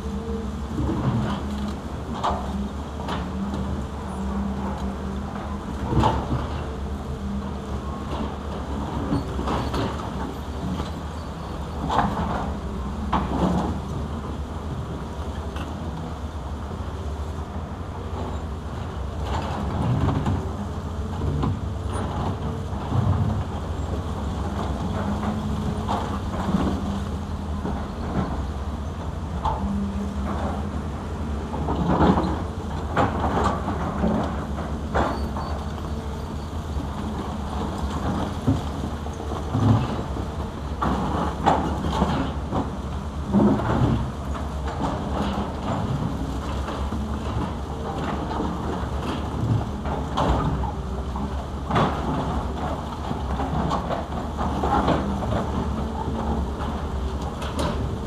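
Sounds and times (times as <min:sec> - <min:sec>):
excavator diesel engines running: 0:00.0 - 0:58.0.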